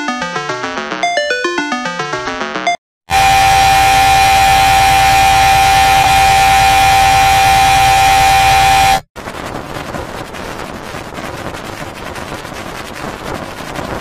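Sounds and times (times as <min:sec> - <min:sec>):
loud buzzing tone: 0:03.1 - 0:09.1
harsh crackling with rapid clicks: 0:09.2 - 0:14.0.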